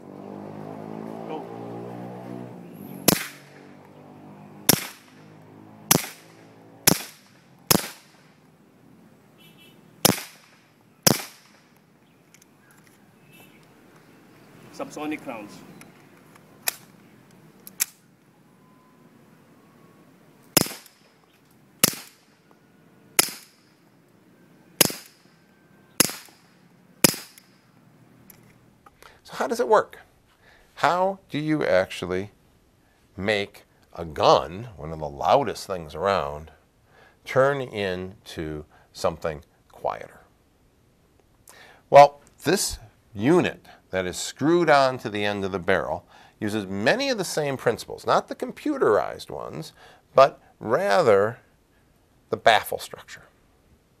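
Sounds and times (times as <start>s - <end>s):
suppressed pistol shots: 3.0s - 3.6s, 4.6s - 5.2s, 5.9s - 8.4s, 10.0s - 11.8s, 20.5s - 21.1s, 21.8s - 22.4s, 23.2s - 23.7s, 24.8s - 25.4s, 26.0s - 27.7s.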